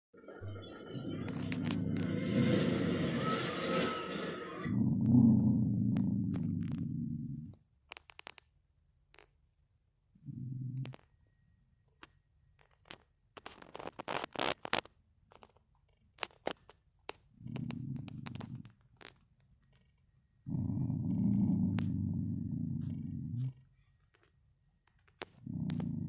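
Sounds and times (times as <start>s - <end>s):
dog growling low: 1.3s - 7.6s, 10.1s - 11.1s, 17.3s - 18.8s, 20.4s - 23.9s, 25.4s - 26.0s.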